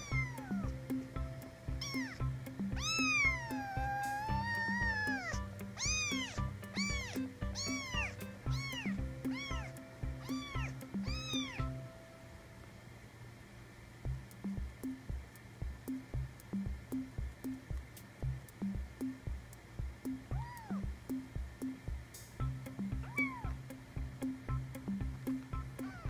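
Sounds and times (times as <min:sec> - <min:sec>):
kitten mewing: 0:00.0 - 0:00.8, 0:01.7 - 0:11.7, 0:20.3 - 0:20.9, 0:23.0 - 0:23.6, 0:25.8 - 0:26.0
background music with steady beat: 0:00.0 - 0:12.6, 0:14.0 - 0:26.0.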